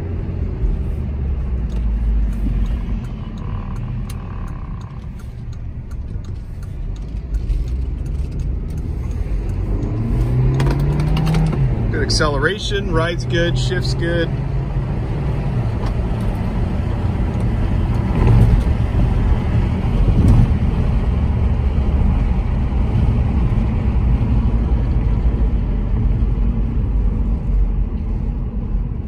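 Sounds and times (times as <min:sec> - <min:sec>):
car engine and tyres rumble: 0:00.0 - 0:29.0.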